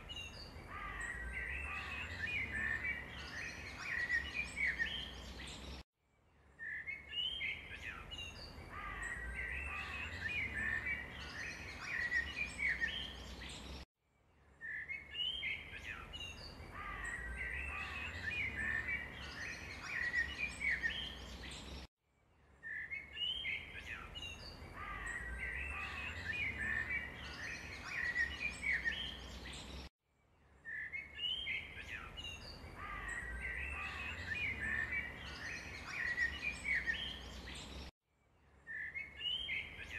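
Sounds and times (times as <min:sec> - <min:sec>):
small birds chirping: 0:00.0 - 0:05.8, 0:06.5 - 0:13.9, 0:14.5 - 0:29.9, 0:30.6 - 0:37.9, 0:38.6 - 0:39.9.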